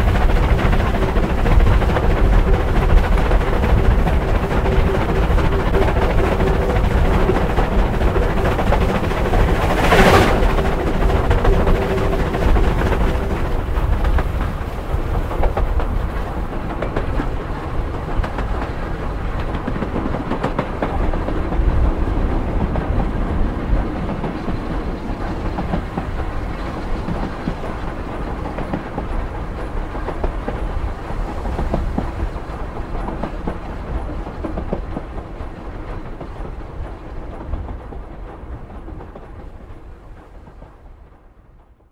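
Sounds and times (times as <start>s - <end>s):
wheels clacking over rail joints: 0.0s - 40.7s
steam train running: 0.0s - 41.6s.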